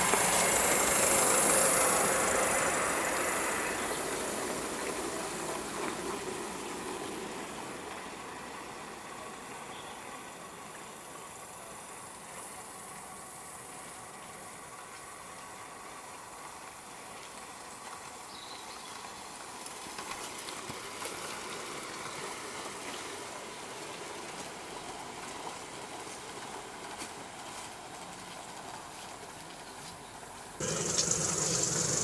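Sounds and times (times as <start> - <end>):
model trains running: 0.0 - 32.0
wheels clicking over rails: 30.6 - 32.0.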